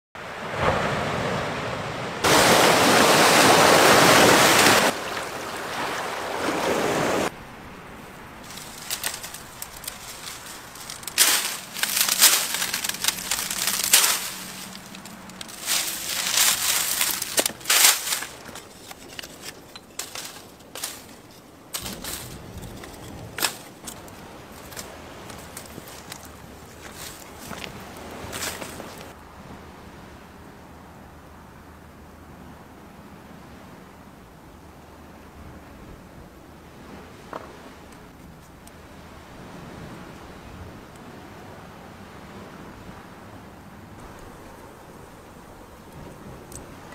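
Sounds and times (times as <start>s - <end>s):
surf washing onto beach: 0.2s - 29.2s
dry palm fronds snapping: 8.4s - 29.2s.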